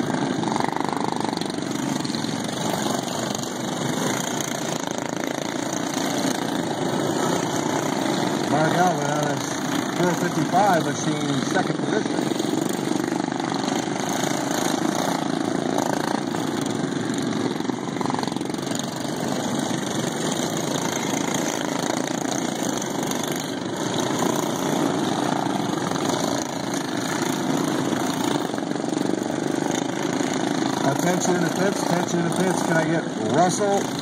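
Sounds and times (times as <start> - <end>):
racing lawn mower engines: 0.0 - 34.0.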